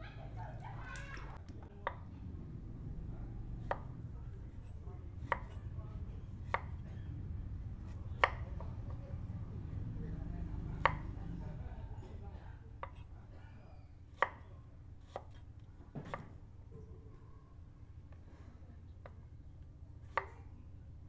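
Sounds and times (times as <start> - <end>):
steady low rumble: 1.4 - 12.7
knife chopping on cutting board: 3.6 - 4.0, 5.2 - 5.6, 6.4 - 6.8, 7.8 - 9.0, 10.8 - 11.1, 14.1 - 16.4.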